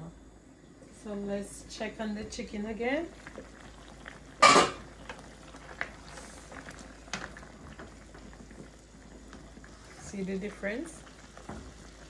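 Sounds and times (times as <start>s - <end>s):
metal cookware clanking: 4.4s - 4.8s
ladle clinking in skillet: 4.4s - 4.9s.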